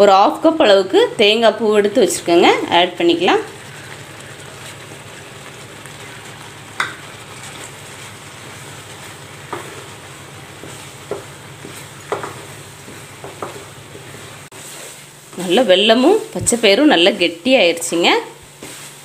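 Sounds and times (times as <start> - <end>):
low sizzle in pan: 0.0 - 19.0
wooden spatula stirring thick mix: 1.6 - 15.6
spatula knocking against pan: 10.6 - 13.7.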